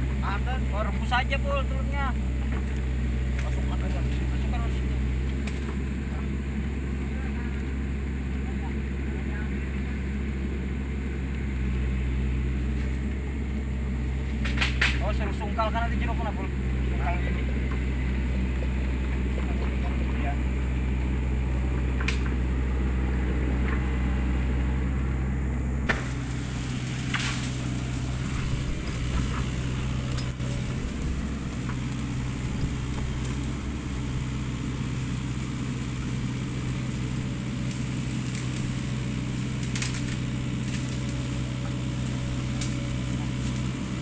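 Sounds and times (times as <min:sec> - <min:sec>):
low rumble: 0:00.0 - 0:44.0
wood fire crackling: 0:00.0 - 0:44.0
sharp pops: 0:25.8 - 0:26.2.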